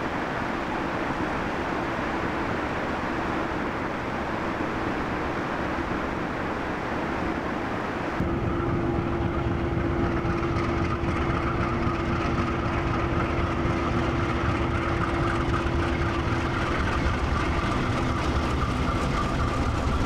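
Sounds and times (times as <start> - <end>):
locomotive low rumble: 7.9 - 20.0
whining tone: 8.2 - 20.0.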